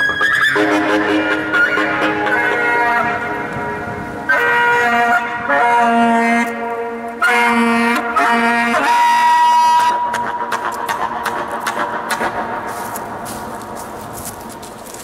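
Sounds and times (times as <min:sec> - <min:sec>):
saxophone long notes: 0:00.2 - 0:10.4.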